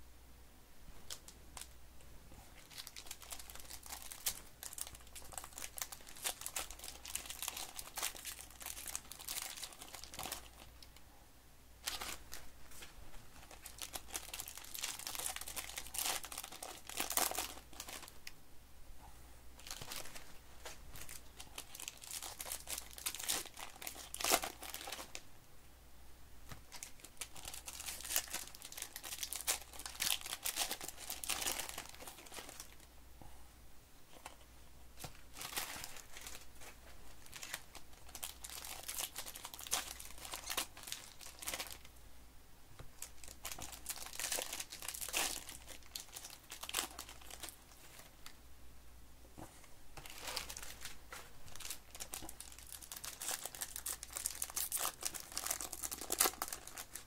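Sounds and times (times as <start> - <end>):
foil wrappers crinkling and tearing: 2.6 - 10.7, 11.8 - 12.4, 13.4 - 18.2, 19.6 - 25.2, 26.5 - 32.8, 35.0 - 41.9, 43.0 - 48.1, 50.0 - 57.0.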